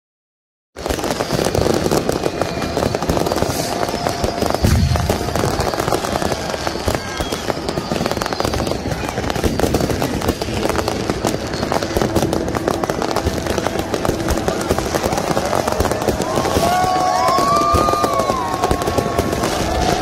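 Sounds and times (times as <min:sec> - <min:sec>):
fireworks and firecrackers crackling: 0:00.8 - 0:20.0.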